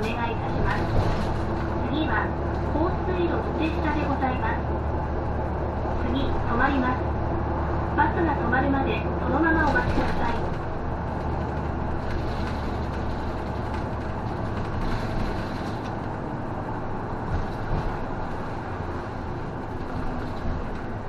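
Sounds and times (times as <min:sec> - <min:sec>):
tyre and road noise: 0:00.0 - 0:02.9, 0:09.5 - 0:21.0
bus engine drone: 0:00.0 - 0:21.0.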